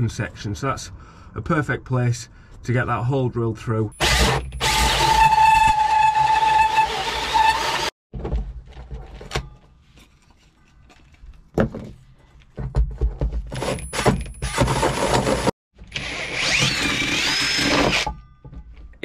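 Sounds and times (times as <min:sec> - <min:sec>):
cordless drill with hole saw: 0:04.0 - 0:08.0, 0:14.4 - 0:18.2.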